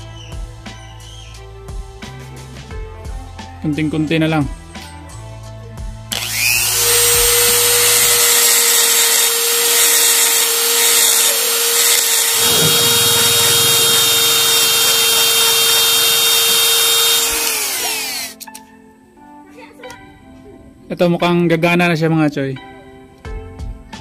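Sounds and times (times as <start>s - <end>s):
rotary tool grinding metal: 6.2s - 18.4s.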